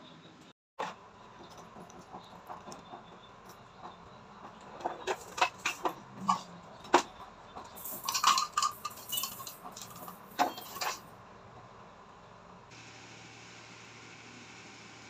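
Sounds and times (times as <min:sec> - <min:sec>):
household objects clinking and knocking: 0:01.4 - 0:11.1.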